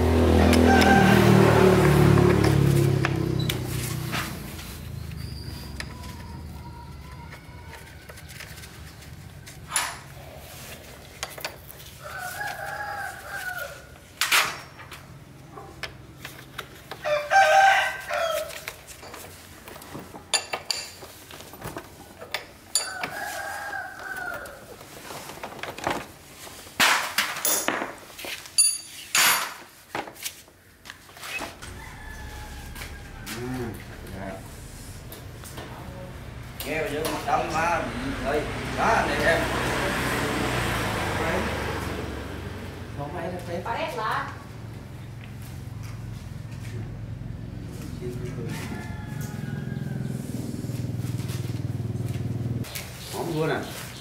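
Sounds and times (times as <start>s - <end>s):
rooster crowing: 0.1s - 2.2s, 12.0s - 14.0s, 17.0s - 18.7s, 22.8s - 24.8s, 31.6s - 42.5s, 48.1s - 51.7s
short loud rooster call: 0.4s - 1.6s, 31.6s - 35.1s
sharp knocks and clinks: 28.6s - 29.6s.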